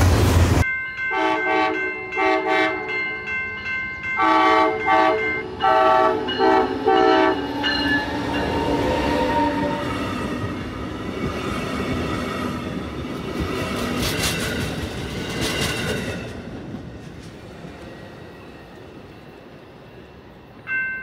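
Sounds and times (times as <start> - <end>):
freight train rumble: 0.0 - 20.8
locomotive horn blasts: 1.1 - 3.0, 4.2 - 7.7
train wheels rolling: 6.2 - 19.9.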